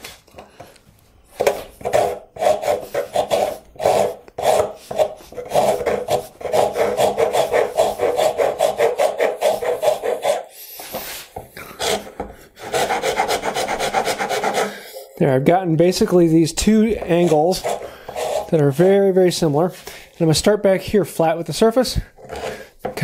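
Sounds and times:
rasp strokes on wood: 1.4s - 15.1s, 16.9s - 19.0s.

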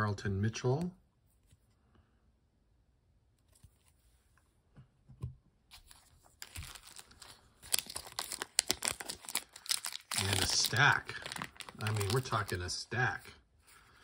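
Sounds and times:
plastic wrapper crinkling and tearing: 6.4s - 12.9s.

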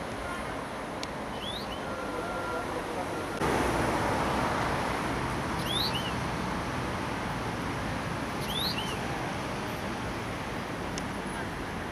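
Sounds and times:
steady background noise: 0.0s - 11.9s
songbird calls: 1.3s - 2.0s, 5.6s - 6.2s, 8.4s - 9.1s.

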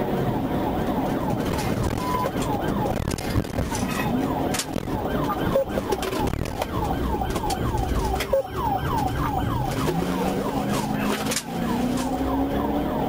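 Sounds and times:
police siren yelp: 0.0s - 13.0s
car engine accelerating: 8.6s - 13.0s.

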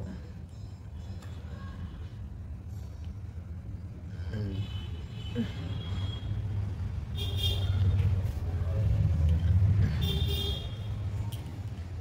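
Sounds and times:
vehicle engine rumbling: 5.6s - 12.0s.

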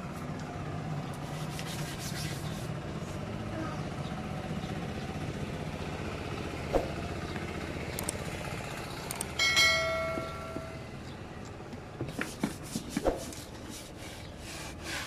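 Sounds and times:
bell chime ding: 9.4s - 10.9s.

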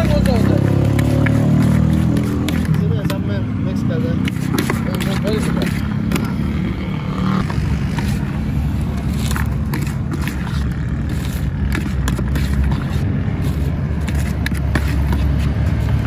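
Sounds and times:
low rumble of street traffic: 0.0s - 16.0s
paper cone rustling: 4.2s - 6.3s, 7.9s - 16.0s.

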